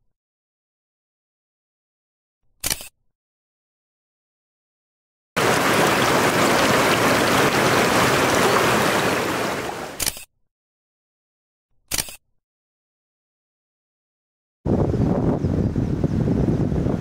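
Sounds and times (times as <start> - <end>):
camera shutter click: 2.6 - 2.9, 10.0 - 10.3, 11.9 - 12.2
stream water rushing and splashing: 5.4 - 10.0.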